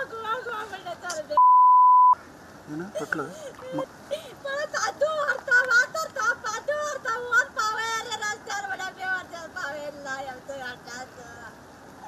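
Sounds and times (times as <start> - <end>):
woman crying and sobbing: 3.0 - 7.6.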